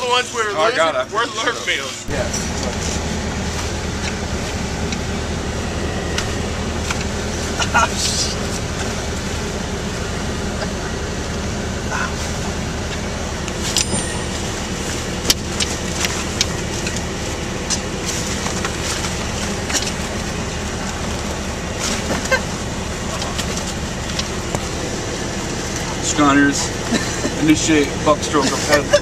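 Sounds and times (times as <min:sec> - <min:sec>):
diesel engine drone: 0:00.0 - 0:29.0.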